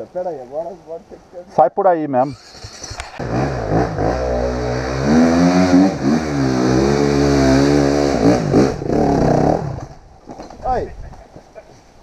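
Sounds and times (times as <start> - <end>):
dirt bike engine revving: 2.2 - 10.1.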